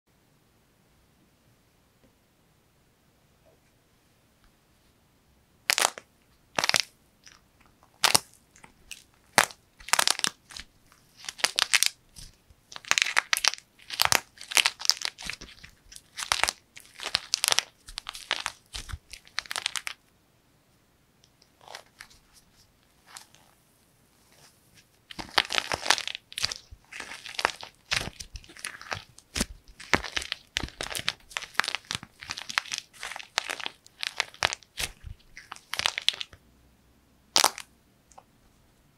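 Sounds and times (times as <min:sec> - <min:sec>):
soft clay squeezed and torn: 0:05.7 - 0:20.0, 0:24.4 - 0:36.4, 0:37.4 - 0:38.2
dried clay cracking and crunching: 0:06.6 - 0:20.0, 0:25.1 - 0:36.4, 0:37.4 - 0:37.7.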